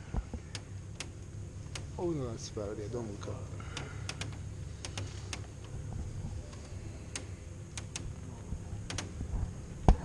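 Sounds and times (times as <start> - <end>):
cable lift humming: 0.0 - 10.0
sharp metallic clicks: 0.4 - 2.3, 3.7 - 5.8, 6.5 - 9.3.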